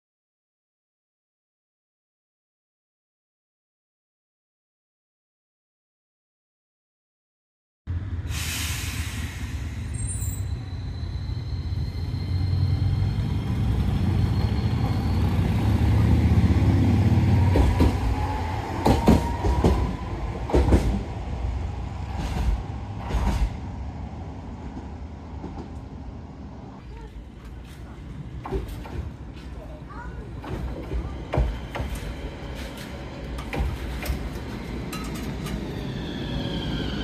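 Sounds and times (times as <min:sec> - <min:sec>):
tram rumbling: 0:07.9 - 0:37.0.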